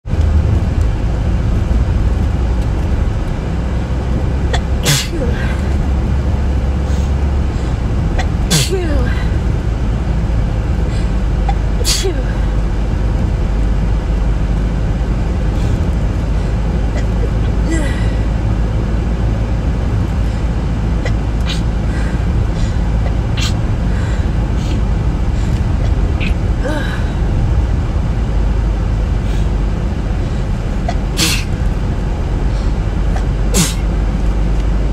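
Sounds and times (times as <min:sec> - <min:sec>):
low rumble: 0:00.0 - 0:34.9
woman sneezing: 0:04.8 - 0:05.7, 0:08.5 - 0:09.2, 0:11.8 - 0:12.4, 0:31.2 - 0:31.5, 0:33.6 - 0:33.9.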